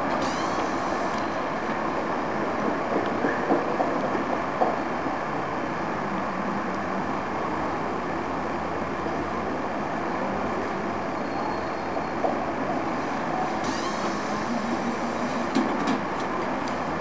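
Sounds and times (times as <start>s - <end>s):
tram clicks and knocks: 0.0s - 4.9s, 13.6s - 17.0s
street and station noise: 0.0s - 17.0s
tram electric whine: 0.0s - 17.0s.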